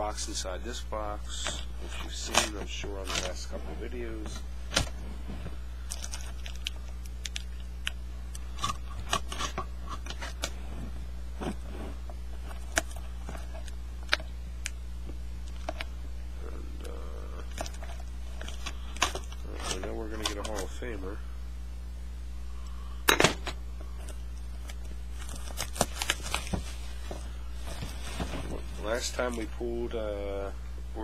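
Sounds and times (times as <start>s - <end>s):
steady low hum: 0.0s - 31.0s
cardboard box handled and opened: 25.2s - 29.5s.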